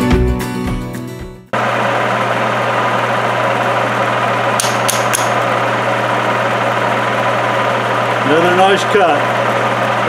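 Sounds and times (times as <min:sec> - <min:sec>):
milling machine humming: 0:01.5 - 0:10.0
sharp clicks: 0:04.6 - 0:05.4.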